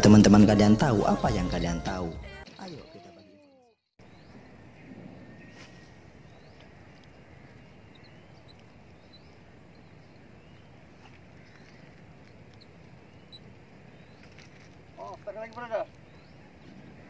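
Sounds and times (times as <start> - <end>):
small birds chirping: 0.0 - 17.0.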